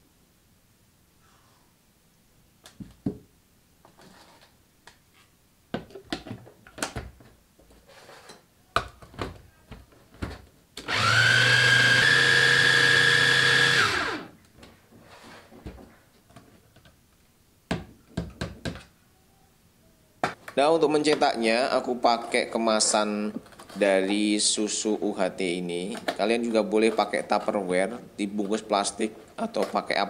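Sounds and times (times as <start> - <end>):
electric chopper motor running: 10.9 - 14.3.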